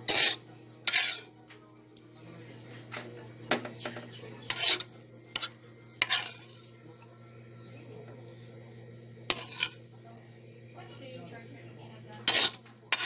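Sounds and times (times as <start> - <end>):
utensil scraping pan: 0.0 - 1.3, 4.4 - 6.8, 9.3 - 9.9, 12.2 - 13.0
faint sizzle: 3.9 - 13.0.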